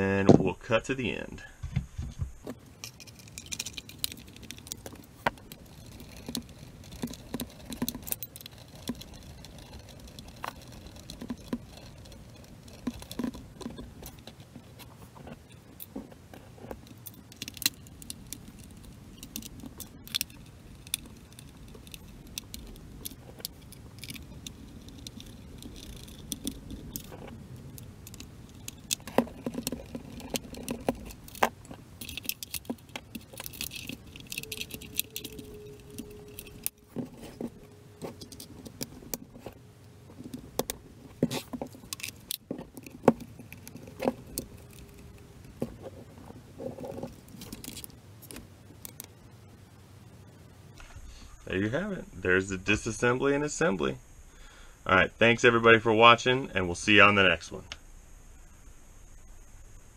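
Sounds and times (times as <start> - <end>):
faint steady tone: 2.3 - 59.9
plastic parts clicking and rattling: 2.4 - 49.2.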